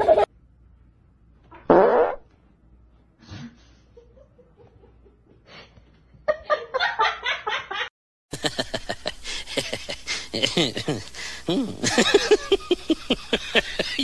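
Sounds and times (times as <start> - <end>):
person laughing: 7.7 - 14.0.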